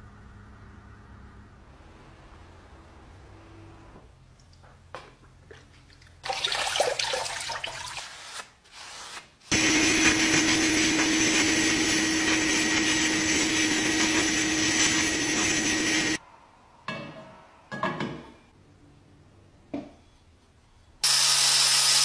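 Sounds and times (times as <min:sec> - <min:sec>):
water splashing and dripping: 0:04.4 - 0:08.0
sandblaster hissing: 0:09.5 - 0:16.2, 0:21.0 - 0:22.0.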